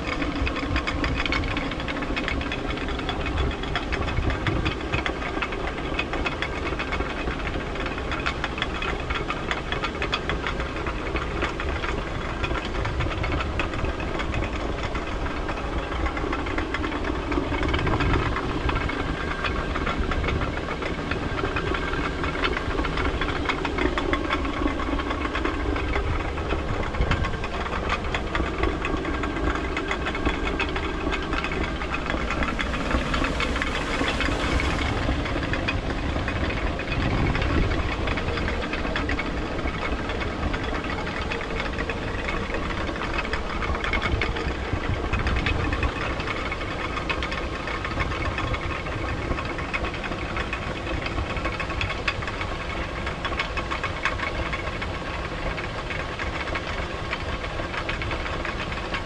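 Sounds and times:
rushing water: 0:30.2 - 0:40.7.

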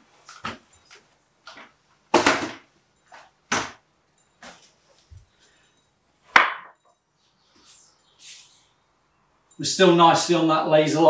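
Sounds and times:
wooden stepladder knocking and bumping: 0:06.3 - 0:06.8.

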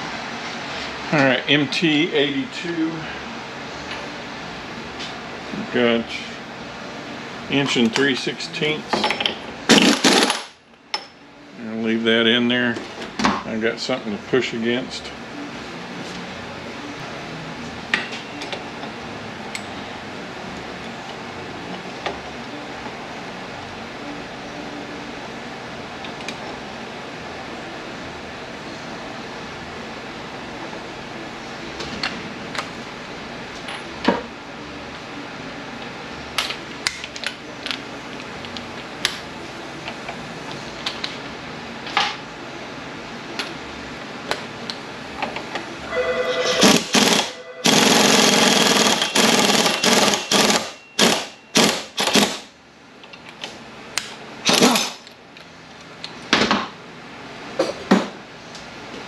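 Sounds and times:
impact wrench hammering: 0:46.6 - 0:52.4.

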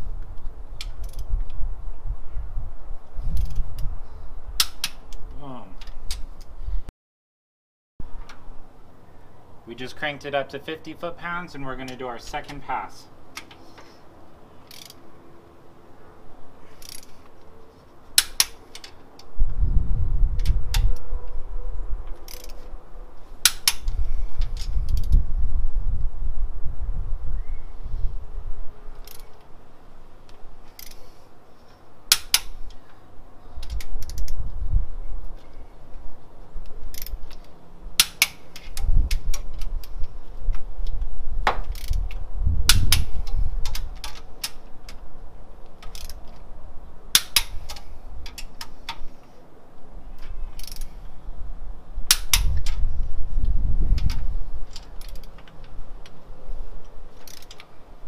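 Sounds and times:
low rumbles of handling: 0:11.0 - 0:58.0
torque wrench clicking: 0:14.6 - 0:15.0, 0:16.8 - 0:17.1, 0:22.2 - 0:22.6, 0:29.0 - 0:29.4, 0:30.7 - 0:31.0, 0:36.9 - 0:40.0, 0:41.7 - 0:45.0, 0:45.8 - 0:46.3, 0:47.1 - 0:49.0, 0:50.6 - 0:51.0, 0:57.2 - 0:57.7.

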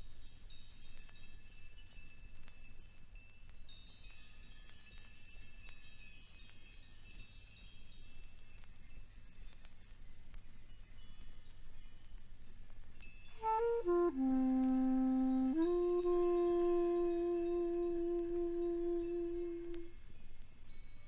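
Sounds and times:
small metal chimes ringing: 0:00.2 - 0:21.0
low steady hum: 0:13.4 - 0:19.9.

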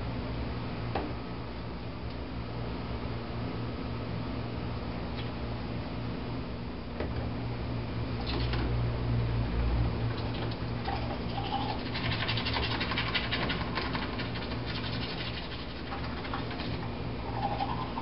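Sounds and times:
toothbrush scrubbing teeth: 0:10.9 - 0:18.0.

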